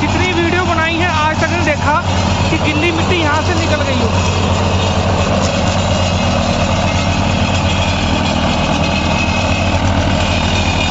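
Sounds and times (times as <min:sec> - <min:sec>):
diesel tractor engine under load: 0:00.0 - 0:10.9.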